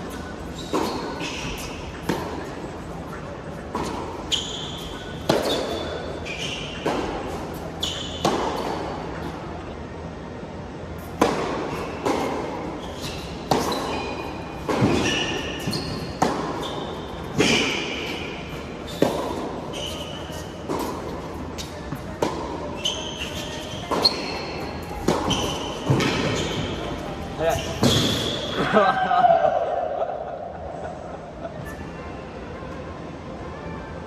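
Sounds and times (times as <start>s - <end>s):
shoes squeaking on court: 0.0s - 9.4s, 11.0s - 28.6s
tennis ball bouncing: 0.1s - 9.4s, 11.0s - 28.5s
racket striking tennis ball: 0.6s - 2.5s, 3.6s - 9.4s, 11.0s - 28.5s.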